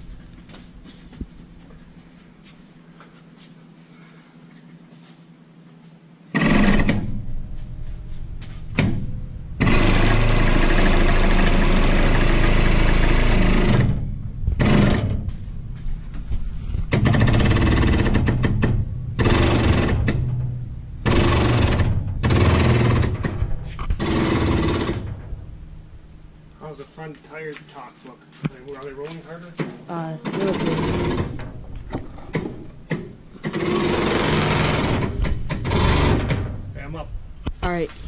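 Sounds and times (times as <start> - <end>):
hydraulic jack pump running: 6.3 - 7.2, 8.7 - 15.4, 16.1 - 20.4, 21.0 - 25.2, 30.2 - 36.7.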